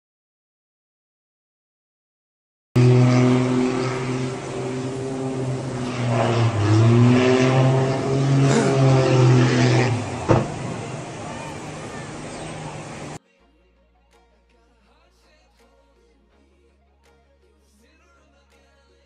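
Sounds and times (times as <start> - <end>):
small aircraft engine: 2.8 - 13.2.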